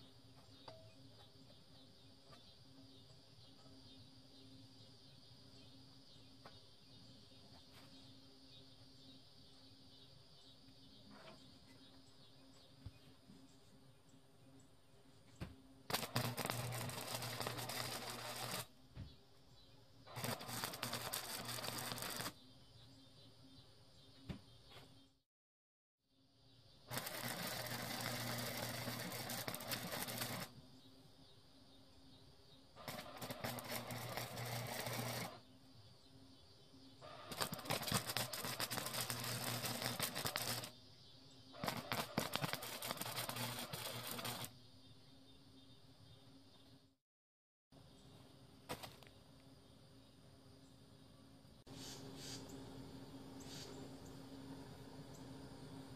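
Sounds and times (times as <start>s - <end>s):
welder low hum: 15.3s - 23.2s, 26.7s - 31.1s, 32.7s - 35.9s, 36.9s - 40.8s, 41.5s - 44.6s, 50.0s - 55.9s
welder arc crackling: 15.9s - 18.7s, 20.1s - 22.4s, 26.9s - 30.6s, 32.8s - 35.4s, 37.2s - 40.8s, 41.6s - 44.5s.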